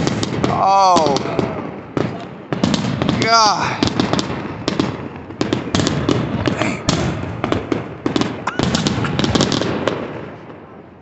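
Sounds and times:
fireworks popping and crackling: 0:00.0 - 0:11.0.

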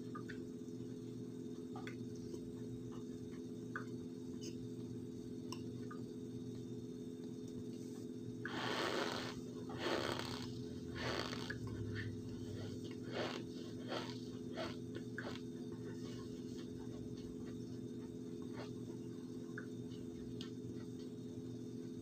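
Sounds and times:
steady low hum: 0:00.0 - 0:22.0
chewing with small crunches: 0:08.4 - 0:21.2.

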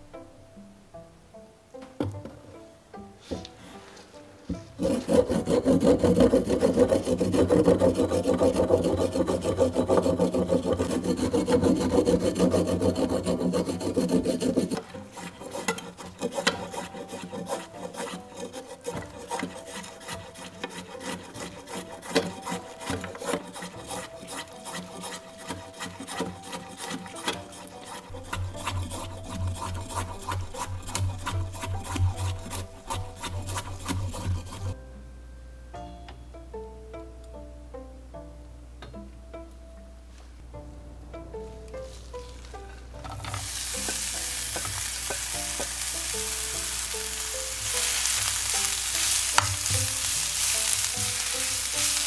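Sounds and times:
knife scraping root on board: 0:04.5 - 0:34.8, 0:43.3 - 0:52.0.

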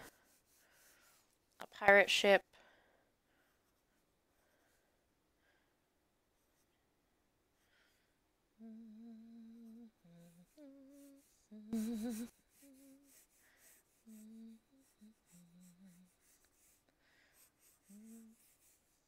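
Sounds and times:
pencil scratching on paper: 0:00.0 - 0:02.1, 0:10.2 - 0:19.0
woman humming: 0:08.6 - 0:13.3, 0:14.0 - 0:16.2, 0:17.8 - 0:18.6.

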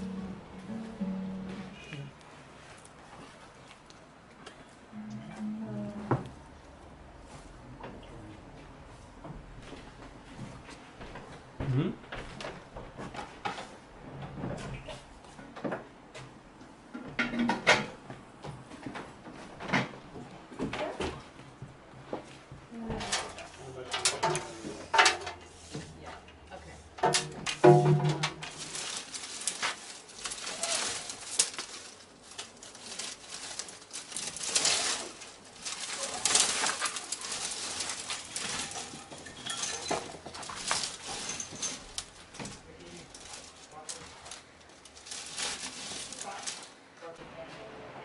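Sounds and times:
dry twigs rustling and snapping: 0:23.0 - 0:25.5, 0:27.0 - 0:46.9.

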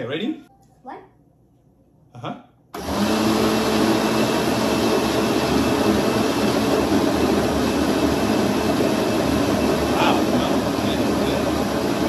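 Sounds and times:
blender running: 0:02.8 - 0:12.0.

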